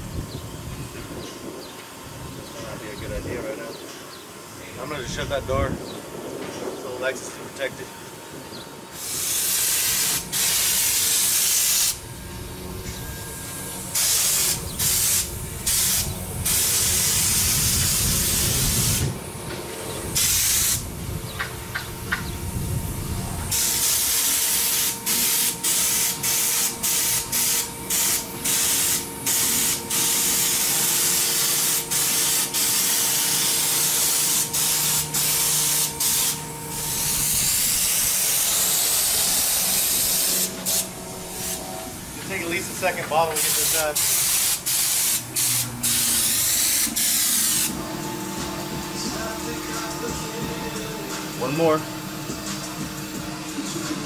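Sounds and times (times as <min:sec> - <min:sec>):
spray gun hissing: 0:08.9 - 0:12.0, 0:13.0 - 0:19.3, 0:19.9 - 0:21.0, 0:22.5 - 0:53.8.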